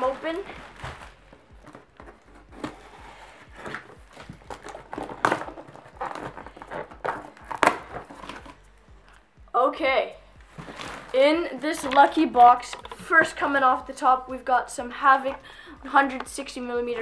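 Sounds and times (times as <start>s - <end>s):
packaging rustling and crinkling: 0.0s - 8.7s, 10.6s - 13.4s.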